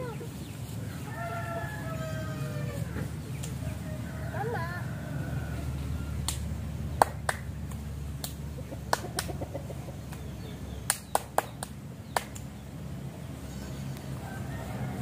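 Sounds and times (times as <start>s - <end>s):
sharp snaps and clicks: 6.2s - 9.4s, 10.1s - 12.5s.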